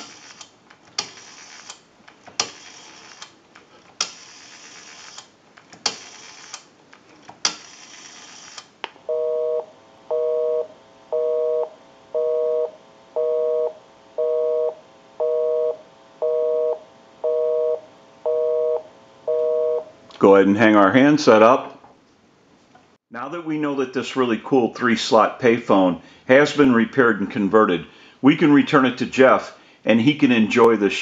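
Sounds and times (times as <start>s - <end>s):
rotary dial clicking: 0.0s - 1.8s, 4.0s - 6.7s
busy signal tones: 9.1s - 19.9s.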